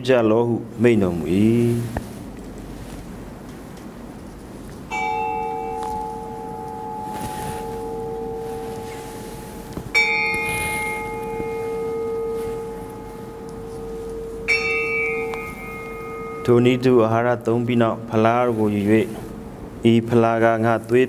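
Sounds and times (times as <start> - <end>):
bell struck and ringing: 4.9 - 17.0.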